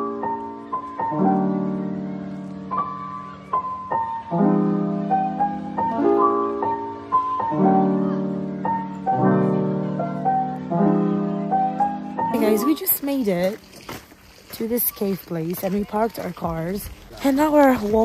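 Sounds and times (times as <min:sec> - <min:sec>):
slow piano music: 0:00.0 - 0:14.5.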